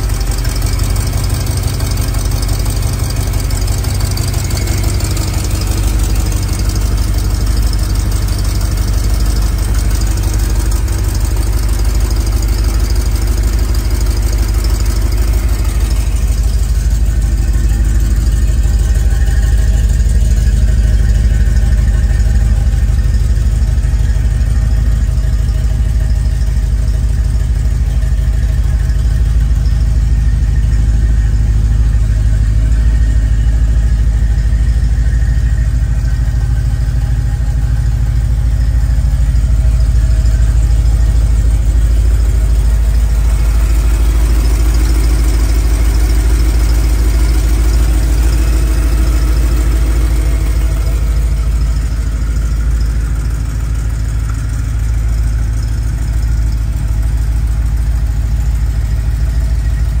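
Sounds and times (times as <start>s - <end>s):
truck engine idling: 0.0s - 60.0s.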